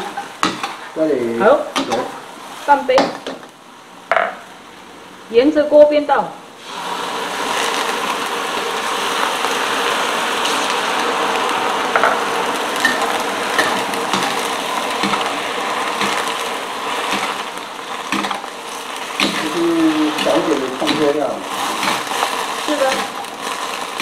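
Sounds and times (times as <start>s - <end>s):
vegetables sizzling in a wok: 0.0s - 24.0s
water turning to steam: 6.6s - 24.0s.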